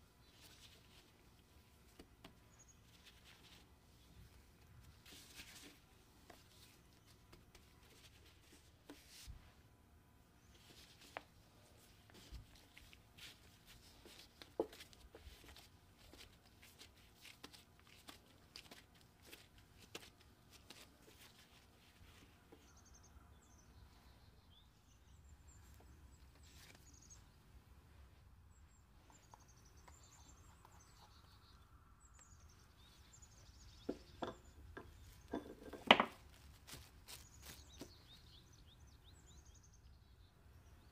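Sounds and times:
hands patting dough on wooden board: 12.0s - 21.5s.

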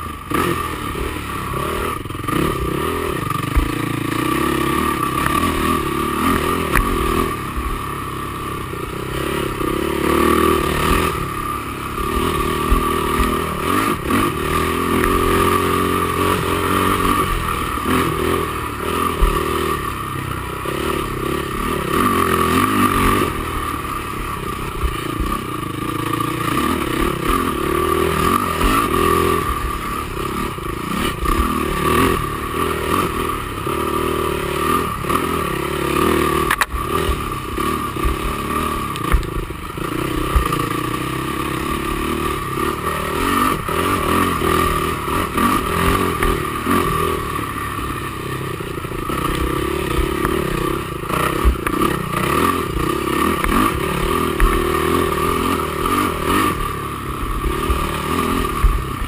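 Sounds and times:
knocks and rattles from quad: 0.0s - 59.0s
quad engine revving: 0.0s - 59.0s.

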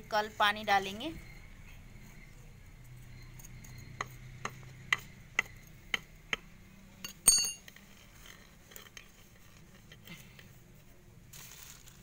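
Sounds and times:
sharp metallic clink: 7.0s - 7.7s
hand scratching soil in a pot: 7.8s - 12.0s.

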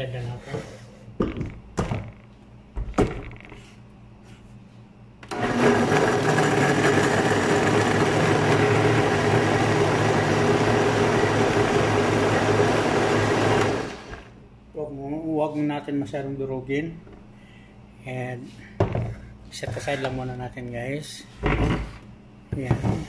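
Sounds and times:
blender motor whirring: 5.2s - 14.4s.

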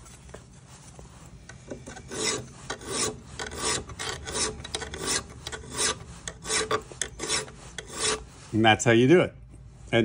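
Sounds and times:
file rasping on metal: 1.8s - 8.4s.

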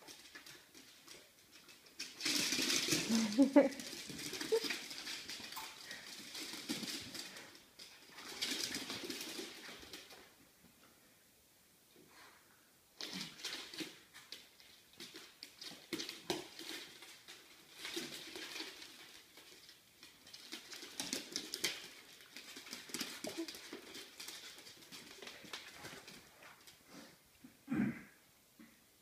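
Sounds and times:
dog claws clicking on hard floor: 0.0s - 10.3s, 13.0s - 26.8s.

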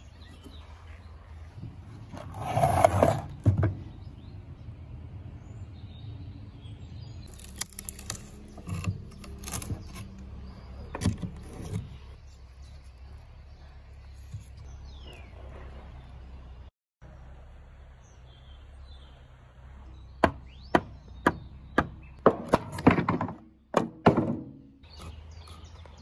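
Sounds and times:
wooden frame scraping on table: 2.1s - 3.7s
wood cracking: 7.3s - 12.1s.

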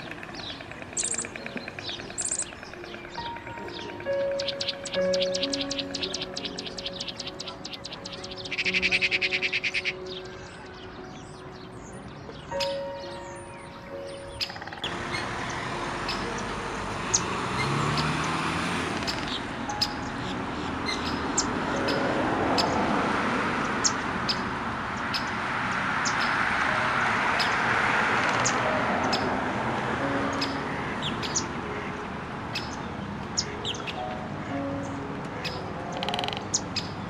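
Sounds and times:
small birds chirping: 0.0s - 22.9s, 23.7s - 25.4s, 26.0s - 26.5s, 30.2s - 31.9s, 32.5s - 37.0s.

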